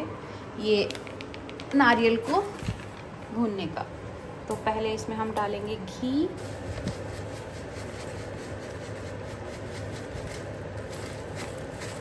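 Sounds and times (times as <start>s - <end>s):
range hood fan whirring: 0.0s - 12.0s
grated coconut pouring: 6.4s - 12.0s.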